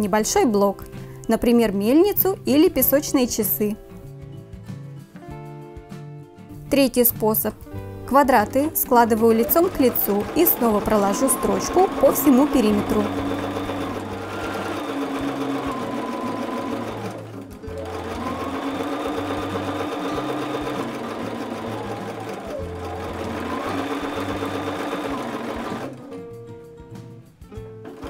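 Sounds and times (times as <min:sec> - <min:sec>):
background music: 0:00.0 - 0:28.0
sewing machine stitching: 0:08.8 - 0:26.1.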